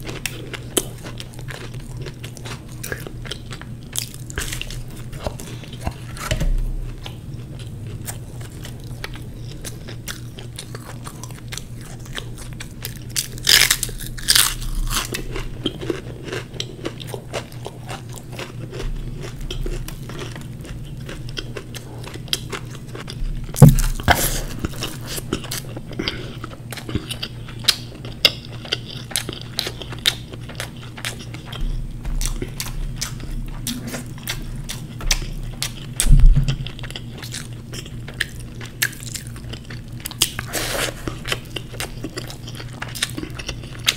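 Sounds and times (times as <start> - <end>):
chewing and crunching food: 0.0 - 43.9
low hum: 2.8 - 15.8.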